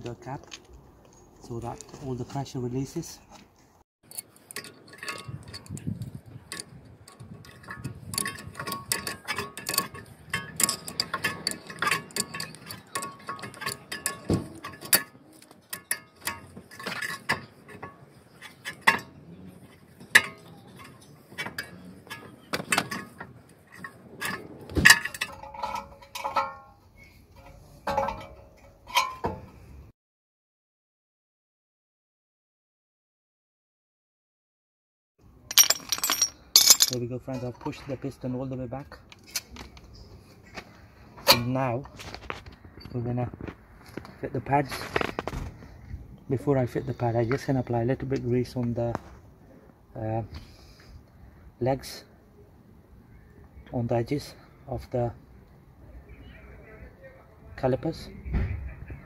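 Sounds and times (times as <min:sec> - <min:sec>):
metal tool clicks and clinks: 0:04.1 - 0:05.8, 0:06.5 - 0:17.2, 0:35.5 - 0:37.0.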